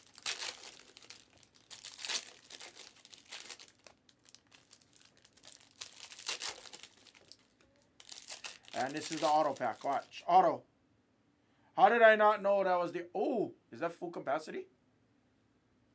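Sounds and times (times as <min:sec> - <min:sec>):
foil wrappers crinkling and tearing: 0:00.0 - 0:10.2.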